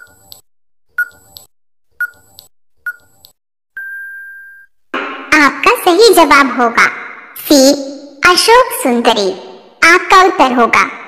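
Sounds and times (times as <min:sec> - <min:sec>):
short timer beeps: 0:01.0 - 0:03.1
long steady beep: 0:03.8 - 0:04.7.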